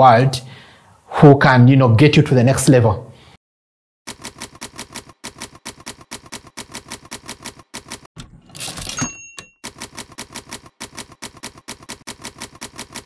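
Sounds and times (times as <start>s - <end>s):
typewriter carriage return bell: 4.1s - 13.0s
typewriter keys striking: 4.1s - 13.0s.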